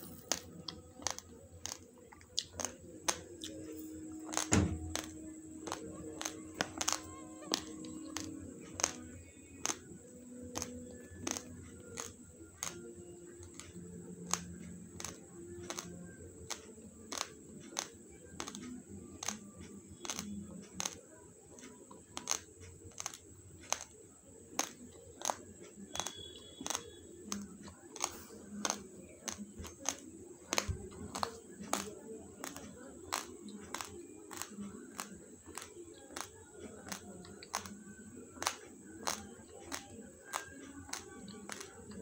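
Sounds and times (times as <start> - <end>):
rice grains crunching while chewing: 0.0 - 9.9, 10.5 - 42.0.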